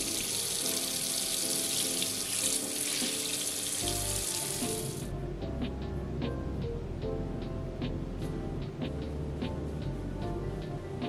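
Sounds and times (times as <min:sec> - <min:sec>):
tap water running into sink: 0:00.0 - 0:05.0
background music: 0:00.0 - 0:11.0.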